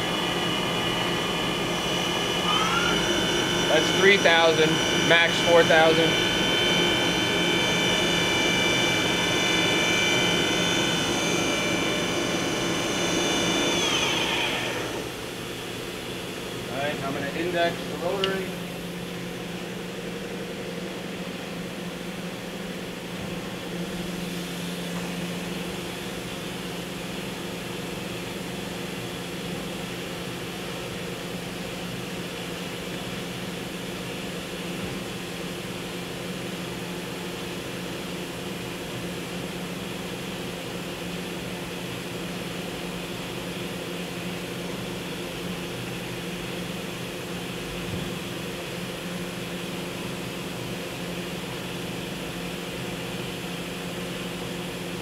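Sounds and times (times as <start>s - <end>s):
machining center humming: 0.0s - 27.7s.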